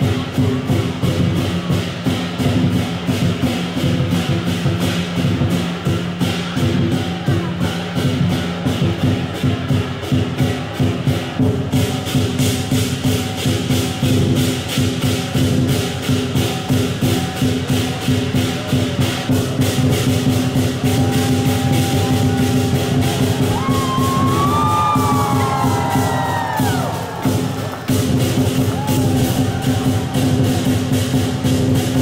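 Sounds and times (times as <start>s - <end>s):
drum cymbals and gong rhythm: 0.0s - 32.0s
crowd shouting: 18.0s - 31.4s.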